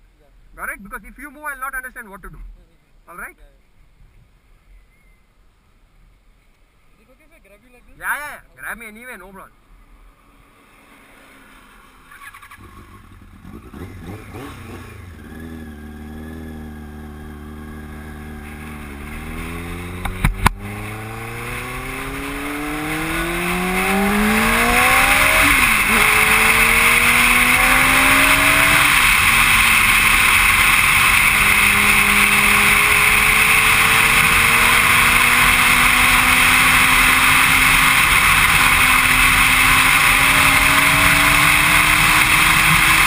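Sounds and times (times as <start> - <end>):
motorcycle engine accelerating: 10.6 - 43.0.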